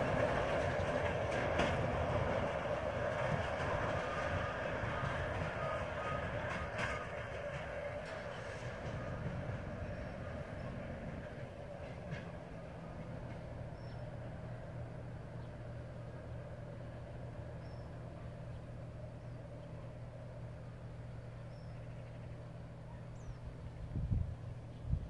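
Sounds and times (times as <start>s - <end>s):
freight train engine hum: 0.0s - 25.0s
train wheels rolling on rails: 0.0s - 25.0s
bird chirps: 21.4s - 23.5s.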